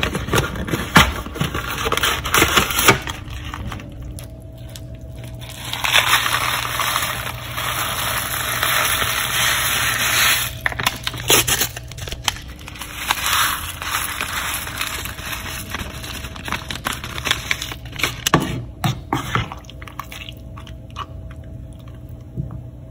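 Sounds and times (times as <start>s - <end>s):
paper packet crinkling: 0.0s - 18.4s
dry noodles pouring: 3.2s - 18.0s.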